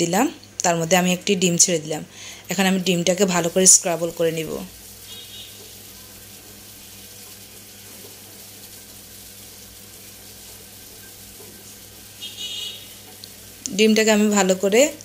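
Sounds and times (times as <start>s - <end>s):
egg sizzling in oil: 2.2s - 15.0s
wooden spatula stirring in pan: 2.8s - 13.6s.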